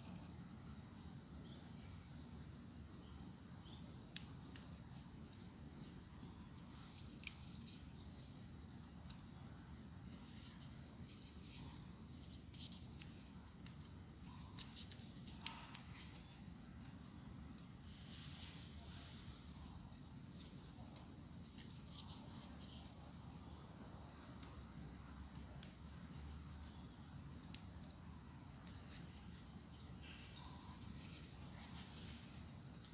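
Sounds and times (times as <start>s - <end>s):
crisp clicks of folded paper: 10.1s - 16.9s.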